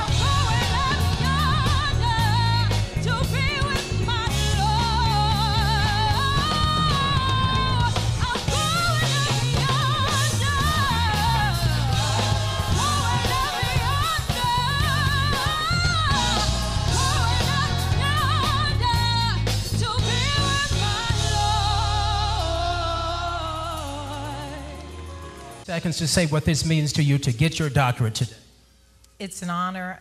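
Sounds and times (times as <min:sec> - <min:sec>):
choir singing: 0:00.0 - 0:02.4, 0:10.4 - 0:18.7
woman singing gospel with vibrato: 0:00.0 - 0:25.1
band with steady bass line: 0:00.0 - 0:29.1.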